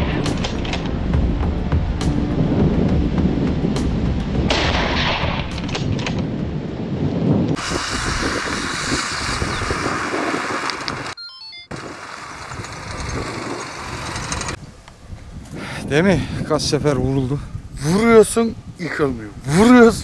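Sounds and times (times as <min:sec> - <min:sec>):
sharp cracks: 0:00.0 - 0:00.9, 0:04.5 - 0:06.3
heavy low rumbling: 0:00.0 - 0:11.2
pickup truck driving on dirt: 0:07.6 - 0:14.6.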